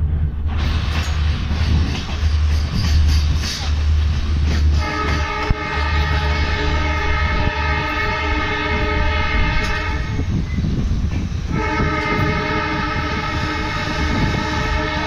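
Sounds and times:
train wheels rumbling on track: 0.0 - 15.0
locomotive air horn: 4.7 - 10.2, 11.5 - 15.0.

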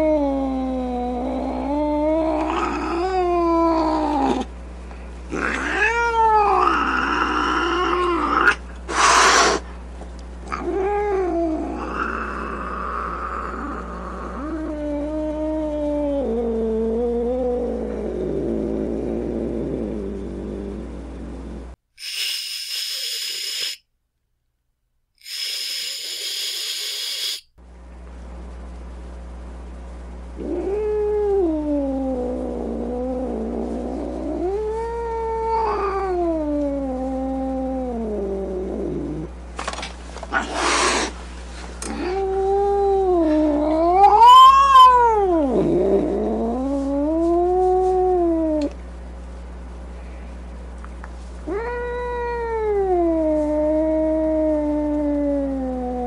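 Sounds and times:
cat yowling and growling: 0.0 - 4.5, 5.3 - 9.7, 10.5 - 20.8, 30.4 - 39.3, 41.8 - 48.8, 51.4 - 56.0
cat hissing: 5.3 - 9.7, 22.0 - 23.8, 25.2 - 27.5, 40.3 - 48.7.

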